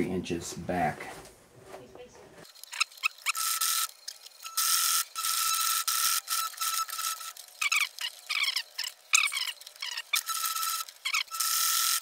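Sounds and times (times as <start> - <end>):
sewing machine motor whine: 2.6 - 12.0.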